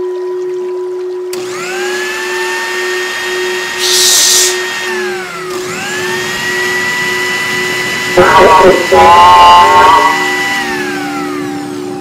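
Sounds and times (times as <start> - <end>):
electric motor whining: 1.3 - 12.0
person hushing: 3.8 - 4.6.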